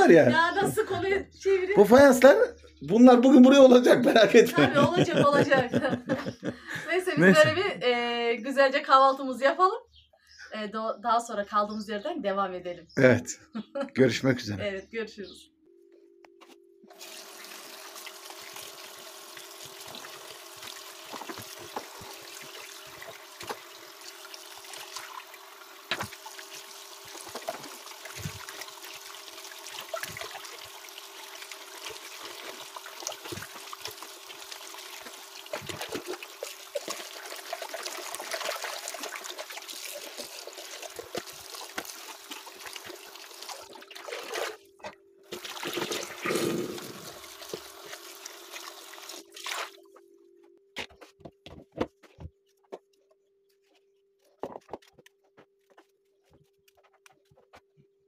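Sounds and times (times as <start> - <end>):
water trickling and dripping: 17.0 - 44.2.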